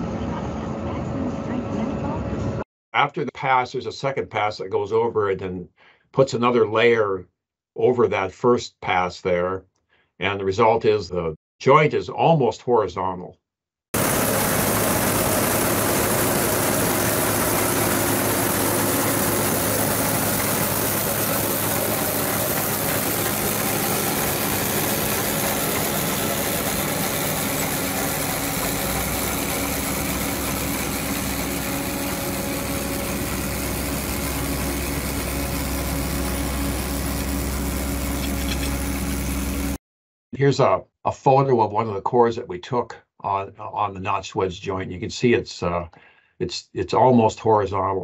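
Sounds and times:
paving machine engine running: 14.0s - 39.8s.

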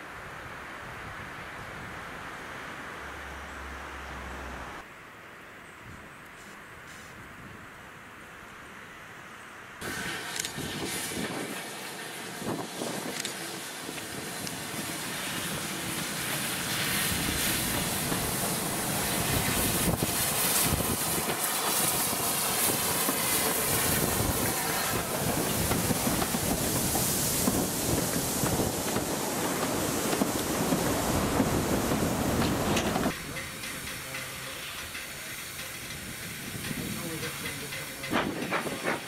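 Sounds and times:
wheels rumbling on rails: 7.5s - 39.0s
steam hiss: 9.8s - 39.0s.

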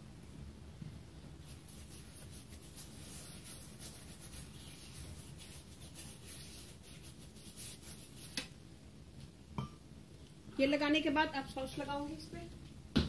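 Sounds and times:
hand rubbing oil on dough: 1.1s - 8.6s.

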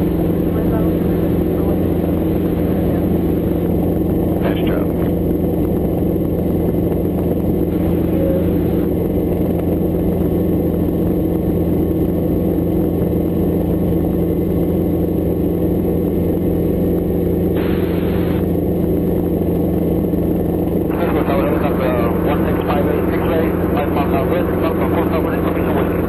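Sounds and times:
helicopter engine and rotor: 0.0s - 26.0s.

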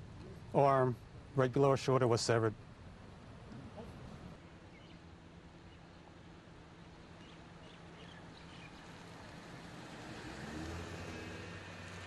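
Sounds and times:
faint bird chirps: 4.7s - 5.0s.

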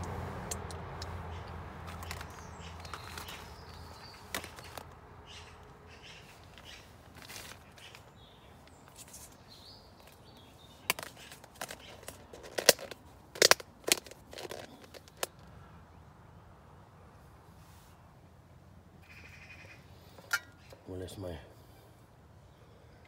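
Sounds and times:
plastic crackling and snapping: 0.0s - 5.0s, 6.4s - 9.4s, 10.0s - 15.5s.

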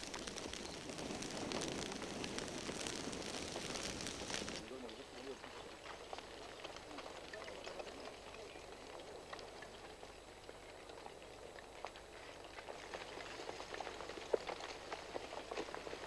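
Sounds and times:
lava flow crackling and clinking: 0.0s - 16.0s.

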